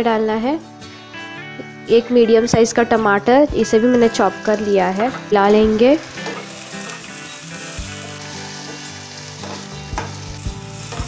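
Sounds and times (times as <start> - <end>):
vegetables sizzling in hot oil: 4.2 - 11.0.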